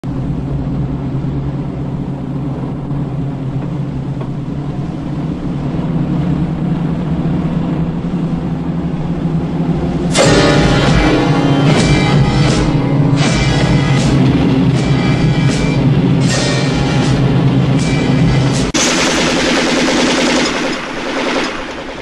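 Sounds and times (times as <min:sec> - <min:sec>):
low engine rumble: 0:00.0 - 0:22.0
loud music: 0:10.1 - 0:20.5.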